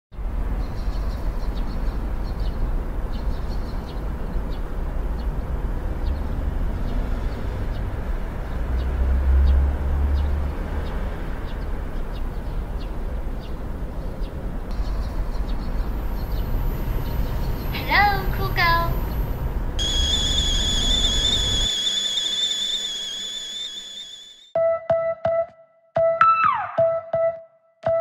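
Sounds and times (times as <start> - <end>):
faint high chirps: 19.8 - 24.4.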